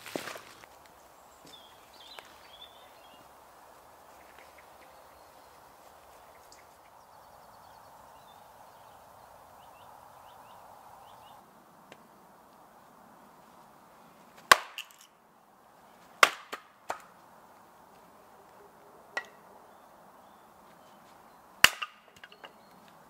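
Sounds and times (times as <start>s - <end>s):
small birds chirping: 0.0s - 14.4s, 17.2s - 23.0s
hatchet splitting firewood: 14.4s - 15.1s, 16.2s - 17.1s, 21.6s - 22.6s.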